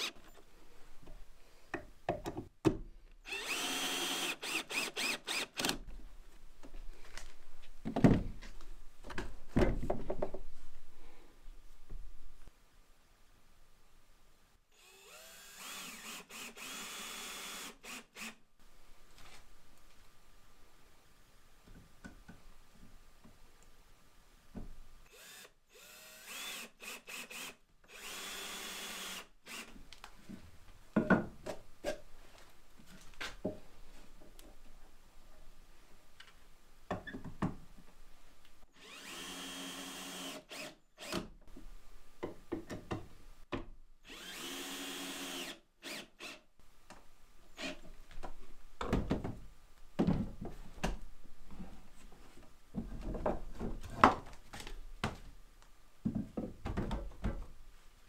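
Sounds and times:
power drill running into wood: 3.3s - 5.8s, 14.8s - 18.4s, 25.1s - 29.7s, 38.8s - 41.1s, 44.1s - 46.4s
wood knocking and clattering: 9.0s - 10.5s, 31.0s - 31.6s, 48.2s - 51.0s, 52.7s - 55.3s, 56.0s - 57.5s.

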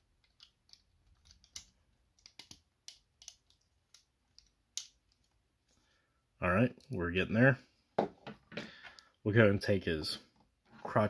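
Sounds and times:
plastic parts clicking: 0.2s - 5.4s.

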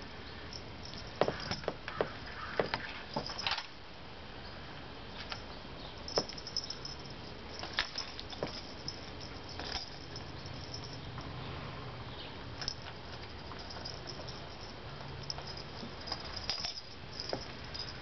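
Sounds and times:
paws and claws tapping on tile: 0.9s - 3.4s.

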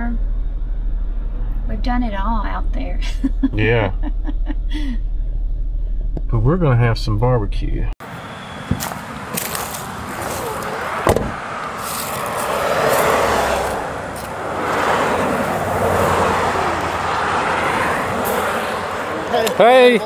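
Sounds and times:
cars passing: 8.0s - 20.0s
sharp knock: 11.0s - 11.4s.

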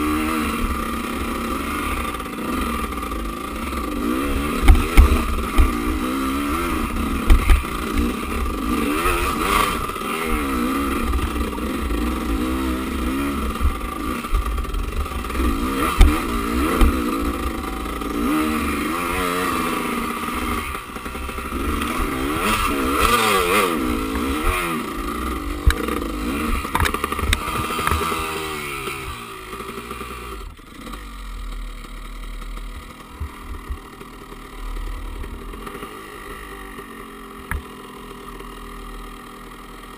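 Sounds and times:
dirt bike engine revving: 0.0s - 39.9s
bike knocking and clattering: 4.6s - 5.9s, 7.2s - 8.2s, 13.6s - 18.4s.

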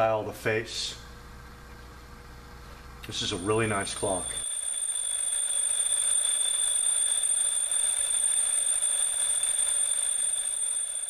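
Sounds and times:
twin bell alarm clock ringing: 3.4s - 11.0s.

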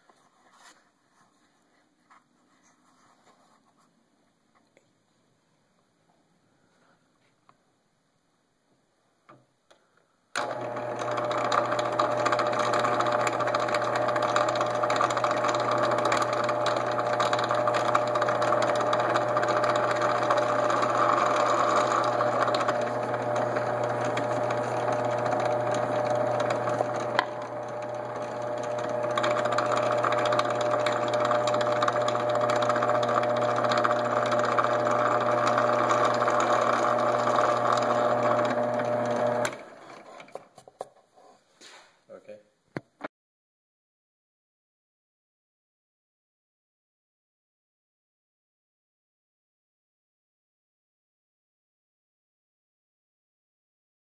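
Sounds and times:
drill press drilling wood: 10.4s - 40.5s.

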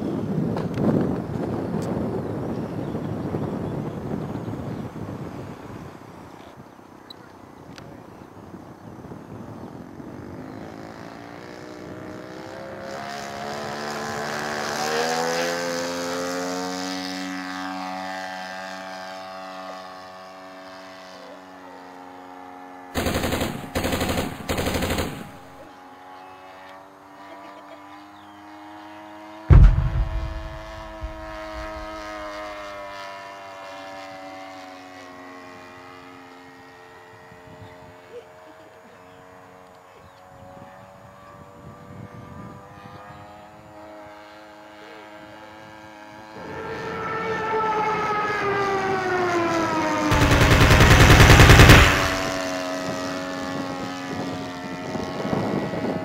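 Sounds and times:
model airplane engine: 0.0s - 56.0s
thump with low rumble: 29.5s - 32.5s.

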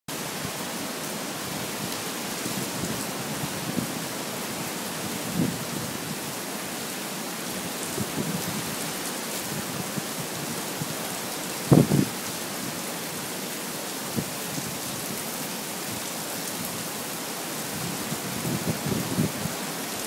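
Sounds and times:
heavy rain: 0.1s - 20.0s
strong wind gusts: 1.4s - 6.4s, 7.6s - 11.0s, 11.6s - 12.2s, 17.7s - 19.8s.

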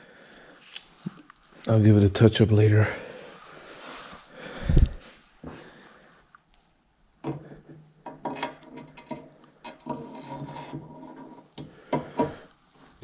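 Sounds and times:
metal scraping and rubbing: 8.4s - 11.6s.

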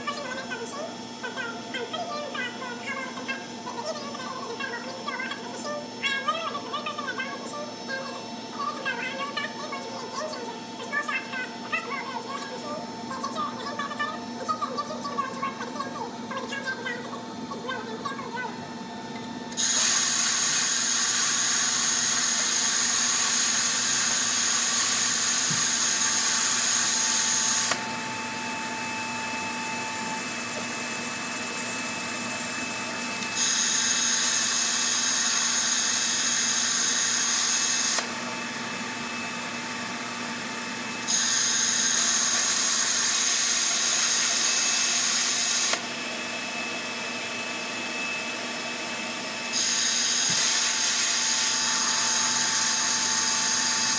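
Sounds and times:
plasma cutter arc hissing: 19.6s - 27.8s, 33.4s - 38.0s, 41.1s - 45.8s, 49.5s - 53.9s.

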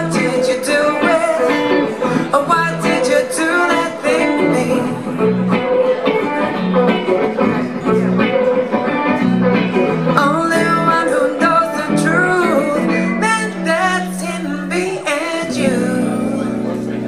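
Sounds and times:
woman singing into a microphone: 0.0s - 5.6s, 9.9s - 17.0s
strummed guitar chords: 0.0s - 17.0s.

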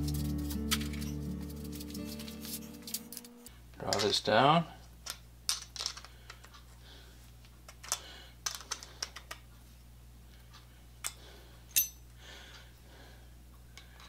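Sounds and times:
small metal parts clicking: 0.2s - 4.1s, 5.0s - 6.6s, 7.7s - 9.4s.

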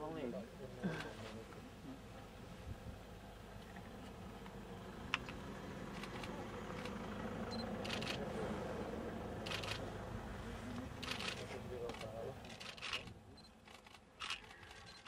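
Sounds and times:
low background rumble: 1.6s - 15.0s
camera shutter clicks: 7.8s - 8.2s, 9.5s - 9.8s, 11.0s - 15.0s.

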